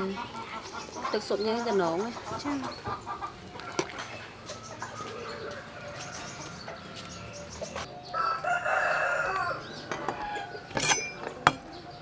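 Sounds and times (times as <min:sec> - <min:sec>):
rooster crowing: 0:08.1 - 0:10.6.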